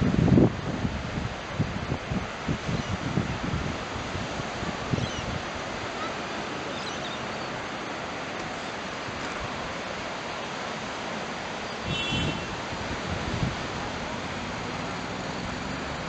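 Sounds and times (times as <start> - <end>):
wind gust on microphone: 0.0 - 10.7, 11.4 - 16.0
ocean surf breaking on beach: 0.0 - 16.0.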